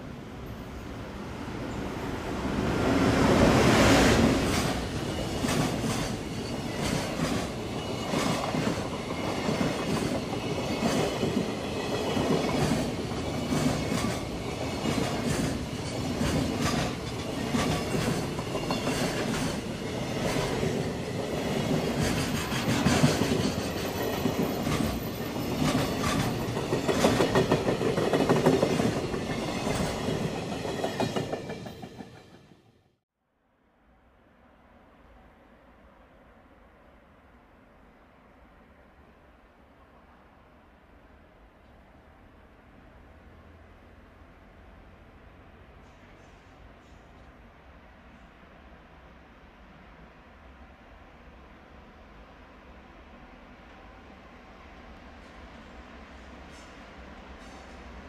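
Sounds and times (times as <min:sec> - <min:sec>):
freight train rolling past: 0:00.0 - 0:32.9, 0:42.7 - 0:58.0
wheels clacking over rail joints: 0:04.5 - 0:32.3.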